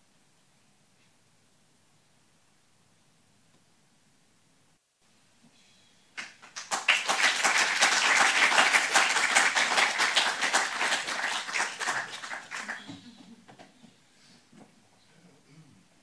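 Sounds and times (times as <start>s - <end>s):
audience applauding: 6.2s - 13.2s.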